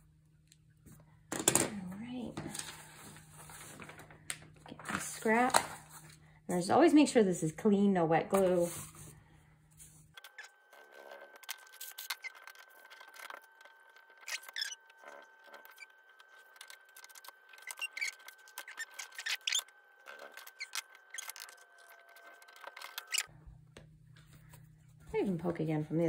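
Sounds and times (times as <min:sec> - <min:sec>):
paper and tools clicking and scraping: 0:09.8 - 0:23.3.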